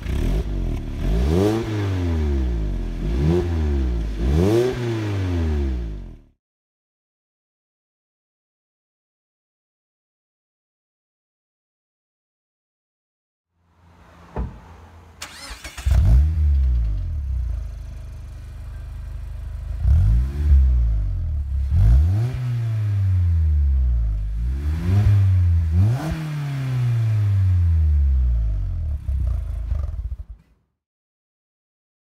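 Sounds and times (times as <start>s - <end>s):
car engine idling and revving: 0.0s - 6.4s, 13.7s - 30.5s.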